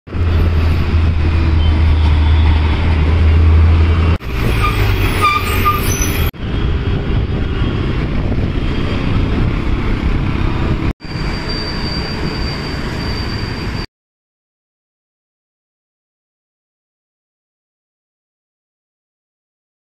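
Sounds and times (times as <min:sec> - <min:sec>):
city traffic noise: 0:00.1 - 0:13.9.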